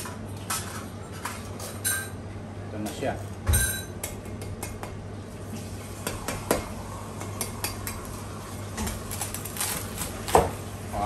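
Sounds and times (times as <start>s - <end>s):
cleaver chopping crispy pork: 8.9s - 10.6s.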